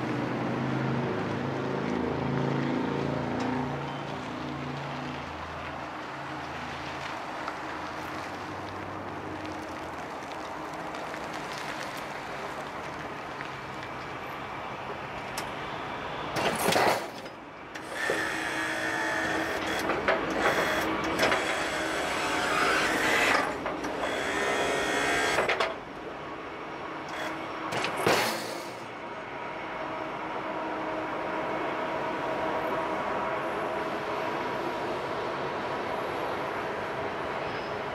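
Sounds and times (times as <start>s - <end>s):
hydraulic pump whine: 17.8s - 25.7s, 27.1s - 28.9s.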